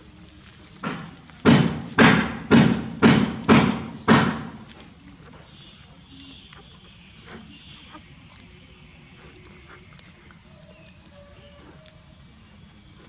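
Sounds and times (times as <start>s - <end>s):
loud thuds: 0.8s - 4.6s.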